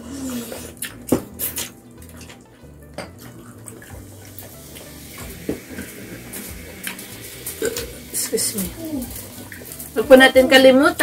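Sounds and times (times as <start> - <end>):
chewing: 0.0 - 2.5, 3.2 - 4.9.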